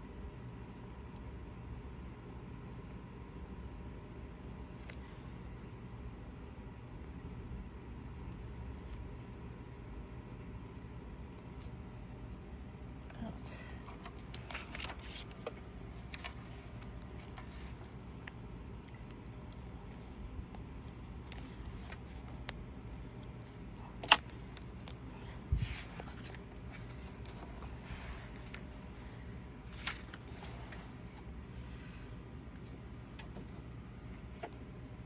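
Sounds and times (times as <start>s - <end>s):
paper pages rustling: 13.8s - 28.9s, 29.6s - 31.4s.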